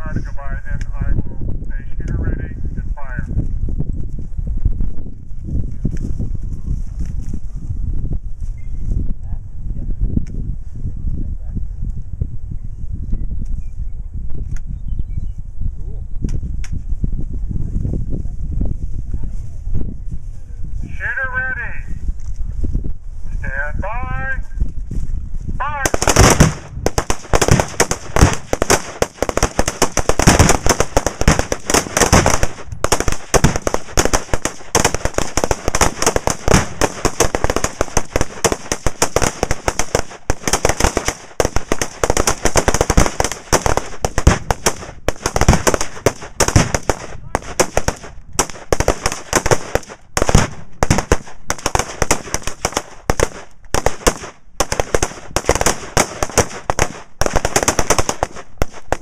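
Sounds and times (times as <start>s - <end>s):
explosive targets booming: 25.7s - 57.4s
rapid rifle fire: 25.8s - 59.0s.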